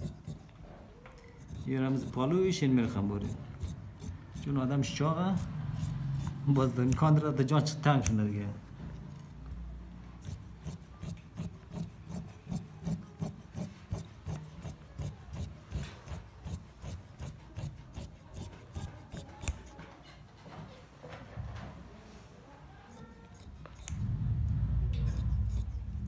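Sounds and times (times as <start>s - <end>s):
shears snipping fabric: 1.4s - 7.2s, 10.2s - 20.0s, 22.9s - 24.0s.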